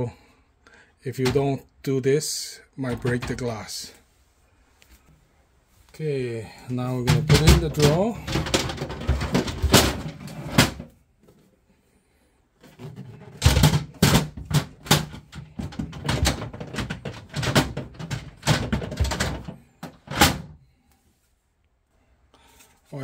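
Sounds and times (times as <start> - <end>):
drawer clunking and rattling: 7.0 - 10.9, 12.6 - 20.6.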